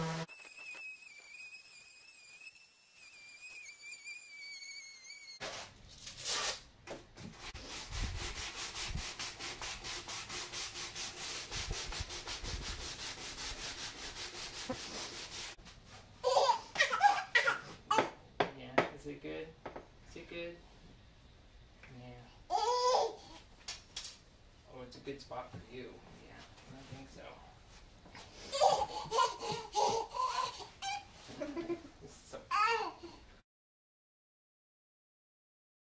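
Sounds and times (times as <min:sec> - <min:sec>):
orbital sander sanding wood: 0:00.0 - 0:05.4, 0:07.6 - 0:15.6.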